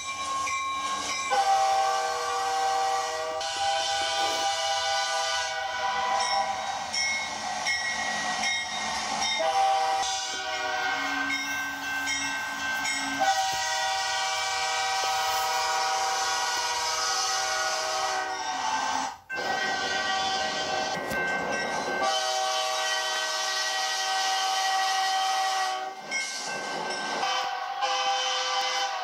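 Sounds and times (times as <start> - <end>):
locomotive air horn blasts: 1.3 - 6.4, 9.4 - 11.4, 12.9 - 21.0, 22.0 - 26.0, 27.2 - 29.0.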